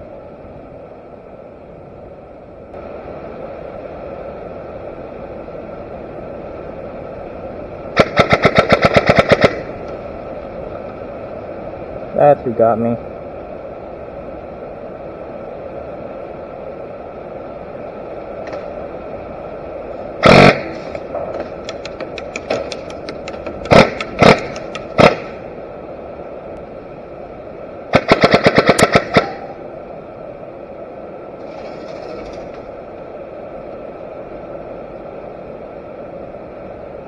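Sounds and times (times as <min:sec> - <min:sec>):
airsoft guns firing: 0:08.0 - 0:09.7, 0:23.7 - 0:25.3, 0:27.9 - 0:29.5
faint clicks: 0:20.9 - 0:25.0.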